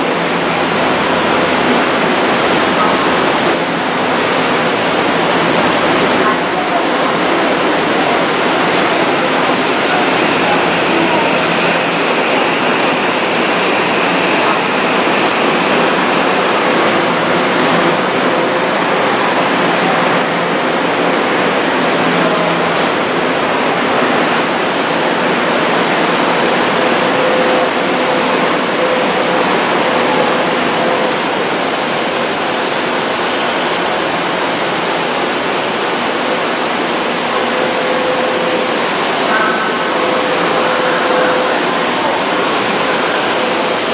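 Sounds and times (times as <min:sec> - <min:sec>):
subway train rushing: 0:00.0 - 0:43.9.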